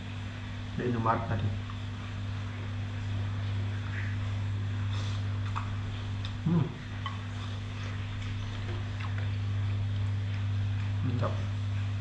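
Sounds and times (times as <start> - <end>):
steady low hum: 0.0 - 12.0
person eating: 3.7 - 12.0
man murmuring: 6.4 - 6.8.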